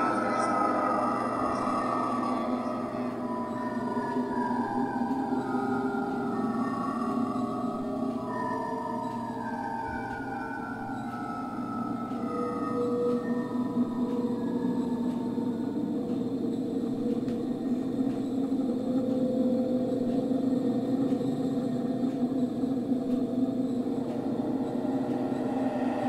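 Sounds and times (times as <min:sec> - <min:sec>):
metro train rumble and hum: 0:00.0 - 0:26.0.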